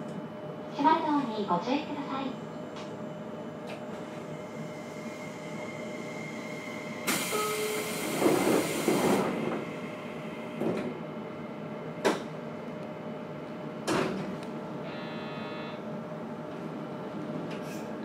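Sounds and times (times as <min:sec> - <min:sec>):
train equipment humming: 0:00.0 - 0:18.0
train doors hissing air: 0:04.7 - 0:11.0, 0:17.5 - 0:18.0.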